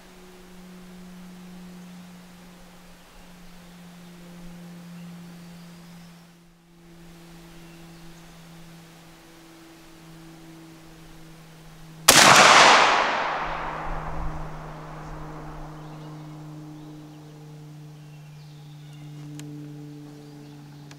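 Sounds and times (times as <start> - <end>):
shotgun shot: 12.1 - 15.9
gunshot echo: 12.1 - 16.0.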